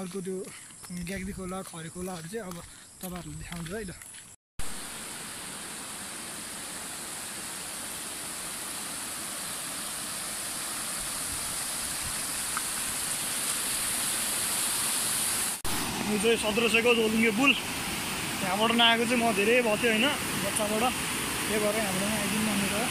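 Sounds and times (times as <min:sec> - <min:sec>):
floodwater rushing over rocks: 0:04.6 - 0:22.9.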